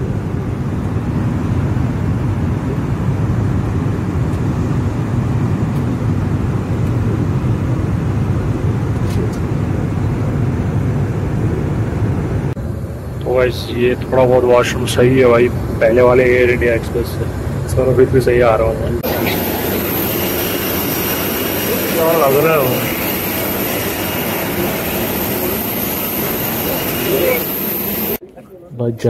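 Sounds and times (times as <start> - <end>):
jet cabin engine and air rumble: 0.0 - 28.2.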